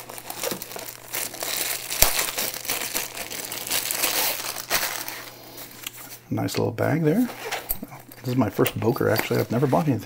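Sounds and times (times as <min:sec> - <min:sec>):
plastic wrapping crinkling: 0:00.0 - 0:05.4.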